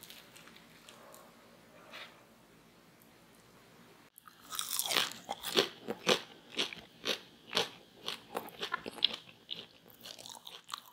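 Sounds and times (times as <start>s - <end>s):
crunchy chewing: 4.2s - 10.9s.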